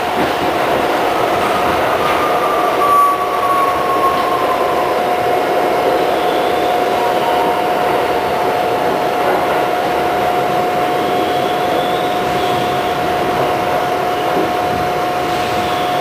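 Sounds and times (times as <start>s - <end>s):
falling whine: 0.0s - 9.7s
train rail rumble: 0.0s - 16.0s.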